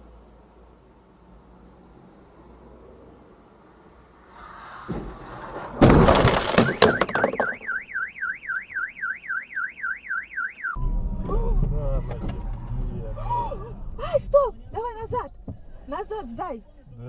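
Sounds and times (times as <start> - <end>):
cars crashing: 4.3 - 7.8
sharp clattering hits: 4.8 - 7.7
car alarm warbling: 6.4 - 11.0.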